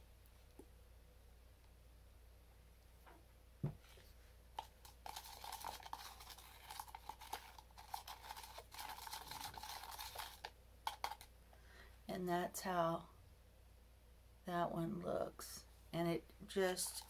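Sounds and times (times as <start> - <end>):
spoon scraping plastic cup: 4.6 - 11.3, 16.6 - 17.0.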